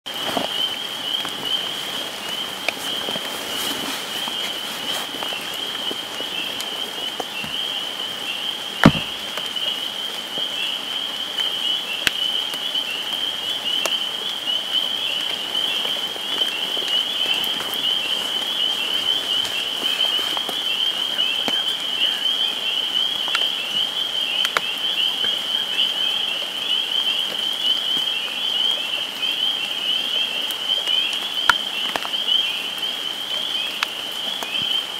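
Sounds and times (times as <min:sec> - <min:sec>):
rain pattering: 0:00.1 - 0:34.9
frog chorus trilling: 0:04.2 - 0:34.9
sharp knock: 0:08.8 - 0:09.2.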